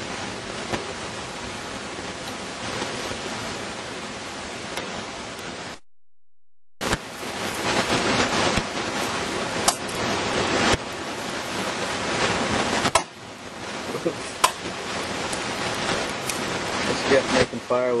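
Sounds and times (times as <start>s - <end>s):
wind noise on microphone: 6.8s - 17.7s.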